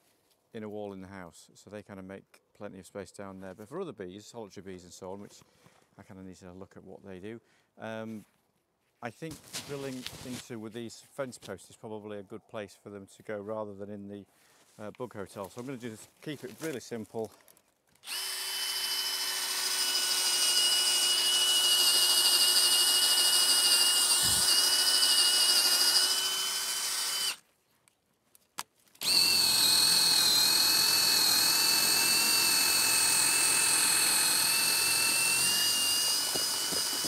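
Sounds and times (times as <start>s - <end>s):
cordless drill boring into wood: 18.0s - 27.4s, 29.0s - 37.0s.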